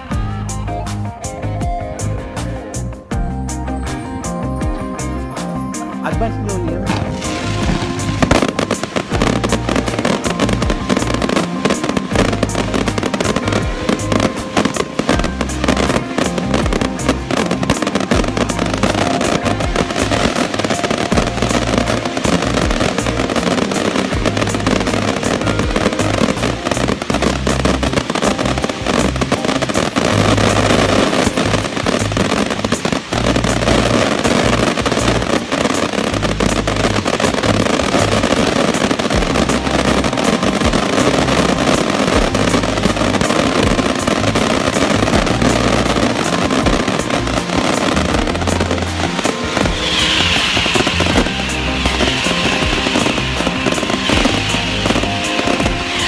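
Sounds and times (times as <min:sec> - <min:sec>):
music with deep bass: 0:00.0 - 0:56.0
fireworks crackling and popping: 0:01.9 - 0:56.0.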